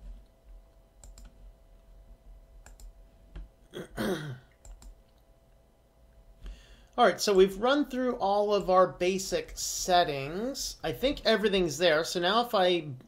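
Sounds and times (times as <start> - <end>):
computer mouse clicks: 0.2 - 1.4, 2.6 - 3.5, 4.5 - 5.3.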